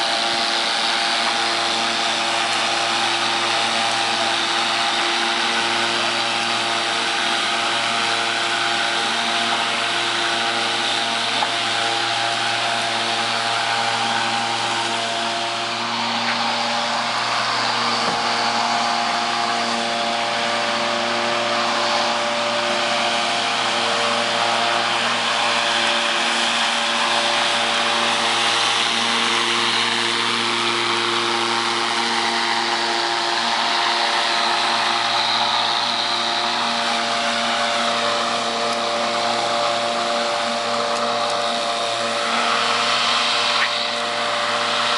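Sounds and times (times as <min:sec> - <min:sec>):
electric lawnmower motor hum: 0:00.0 - 0:44.9.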